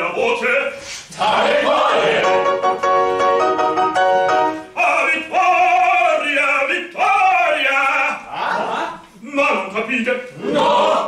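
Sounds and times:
classical accompaniment chords: 0:01.7 - 0:04.8
operatic baritone singing: 0:04.8 - 0:08.6.

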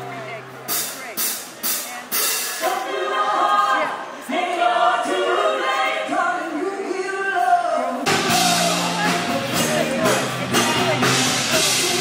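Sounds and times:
band with drums and bass: 0:00.0 - 0:02.8, 0:07.4 - 0:12.0
group of voices singing: 0:02.3 - 0:12.0.

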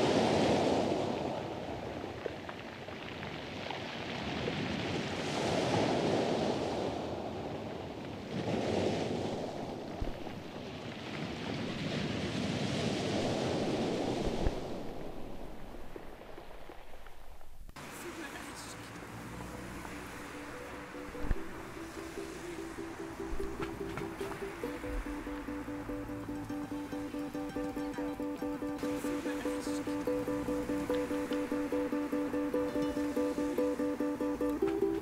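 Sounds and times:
water noise: 0:00.0 - 0:35.0
wind noise on microphone: 0:04.2 - 0:17.8, 0:19.4 - 0:29.2.

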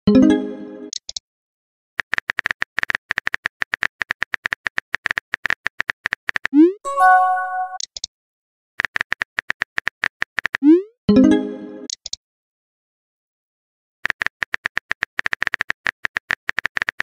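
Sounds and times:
short bell-like chime: 0:06.9 - 0:07.8.

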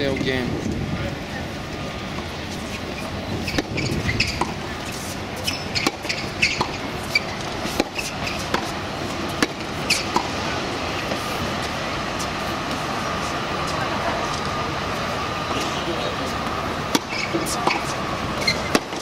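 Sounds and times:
crowd chatter murmur: 0:00.0 - 0:19.0
tennis balls bouncing: 0:02.2 - 0:11.7, 0:15.5 - 0:19.0
tennis balls struck by rackets: 0:02.2 - 0:11.7, 0:15.5 - 0:19.0.

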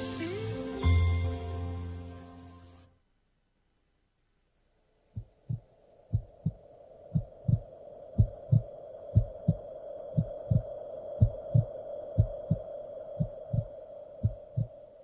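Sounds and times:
steady hum: 0:02.9 - 0:15.0
muffled heartbeat thumps: 0:05.2 - 0:09.6, 0:10.2 - 0:14.8.

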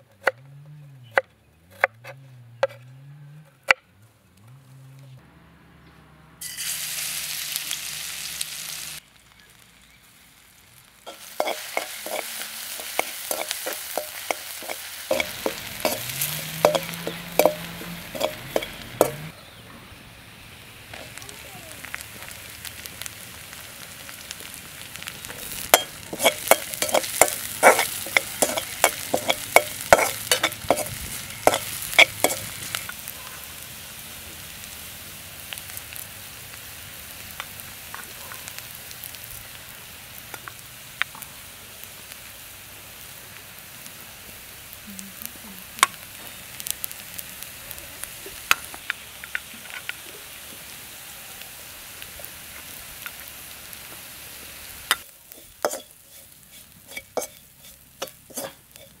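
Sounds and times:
onions sizzling in oil: 0:06.4 - 0:19.6, 0:20.2 - 0:59.0
spoon stirring in metal pan: 0:11.1 - 0:19.3, 0:25.6 - 0:32.9, 0:54.9 - 0:59.0.

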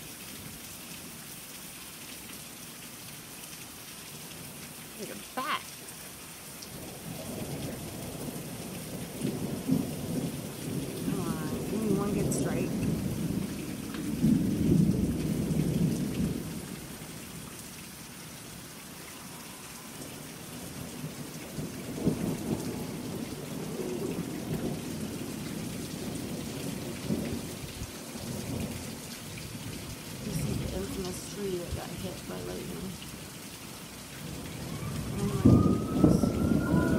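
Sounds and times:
steady rain: 0:00.0 - 0:36.9
thunder rumbling: 0:06.8 - 0:17.0, 0:20.1 - 0:33.0, 0:34.2 - 0:36.9.

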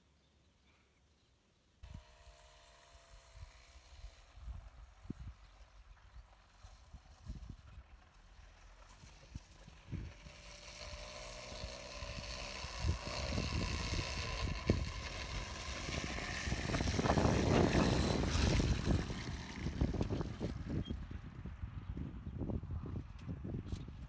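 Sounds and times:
moped engine buzzing: 0:01.8 - 0:21.2
low rumbling: 0:09.2 - 0:23.4.

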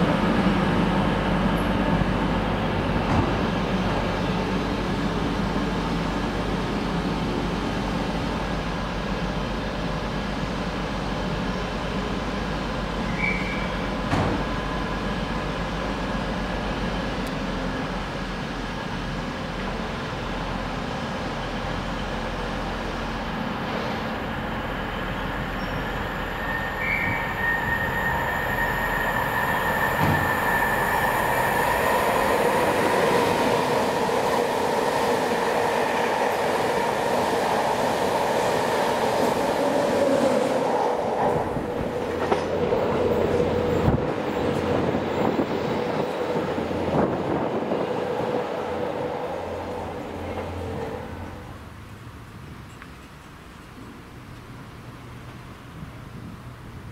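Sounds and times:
train wheels rumbling on track: 0:00.0 - 0:56.9
high-pitched wheel squeal: 0:13.1 - 0:13.9, 0:25.6 - 0:31.8.

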